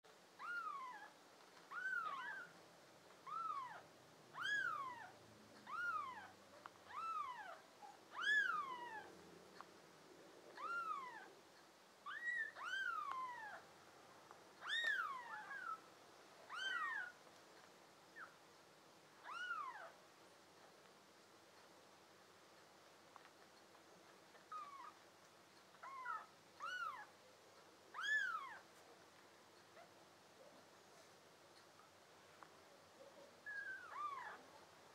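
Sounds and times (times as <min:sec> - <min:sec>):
kitten mewing: 0:33.4 - 0:34.5.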